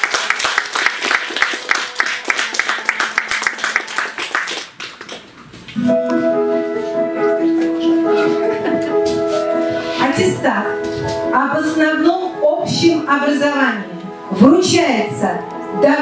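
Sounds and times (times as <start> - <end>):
audience applause: 0.0 - 5.4
piano music with held notes: 5.8 - 16.0.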